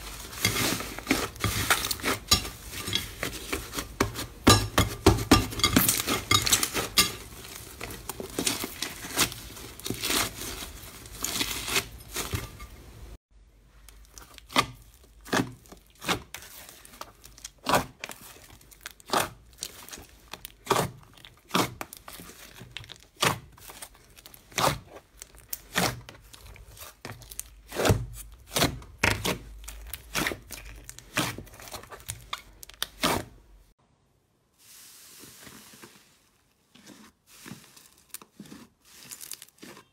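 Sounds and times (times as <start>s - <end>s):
slime crackling when kneaded: 0.0s - 12.4s, 13.8s - 33.3s.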